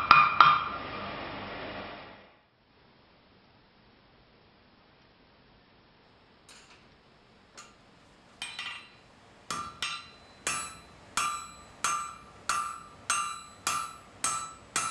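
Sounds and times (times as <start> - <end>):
hammer ringing on anvil: 8.4 - 14.9.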